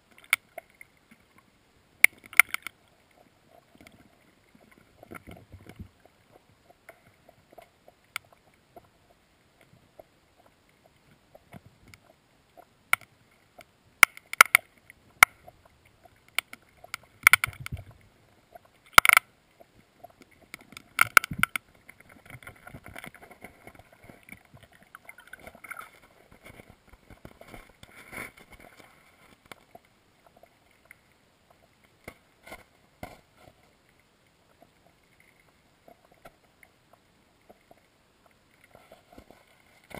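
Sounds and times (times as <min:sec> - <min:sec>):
faint rustling crackle: 0:00.0 - 0:39.9
underwater clicks and knocks: 0:02.0 - 0:02.8, 0:03.6 - 0:08.9, 0:10.8 - 0:31.0.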